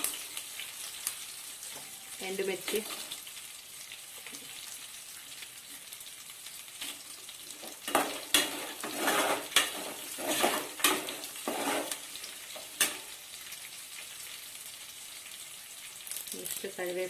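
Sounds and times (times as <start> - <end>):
oil sizzling: 0.0 - 17.0
ladle scraping and knocking pan: 7.7 - 13.1.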